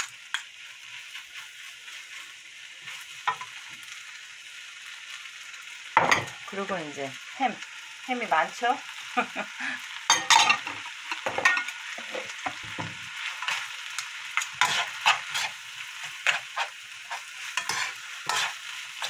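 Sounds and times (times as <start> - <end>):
spoons scraping and tapping a pan: 0.0 - 0.6, 3.2 - 3.6, 10.1 - 13.7, 14.4 - 19.0
rice sizzling in a frying pan: 0.0 - 19.0.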